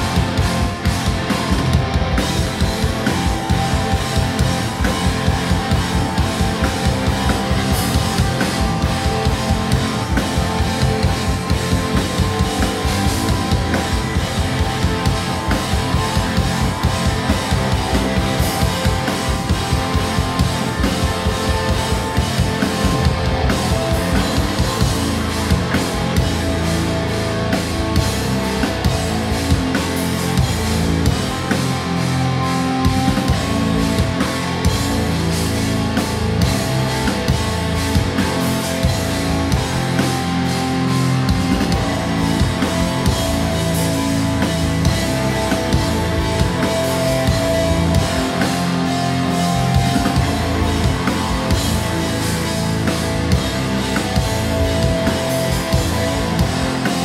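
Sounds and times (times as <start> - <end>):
distorted electric guitars: 0.0 - 57.0
drum kit with rapid bass drum: 0.0 - 57.0.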